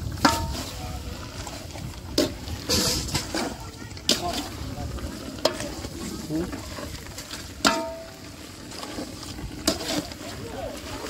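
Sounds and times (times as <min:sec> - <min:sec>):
handling and mixing noise: 0:00.0 - 0:11.0
metal tableware clinking: 0:02.2 - 0:03.5, 0:07.6 - 0:08.2.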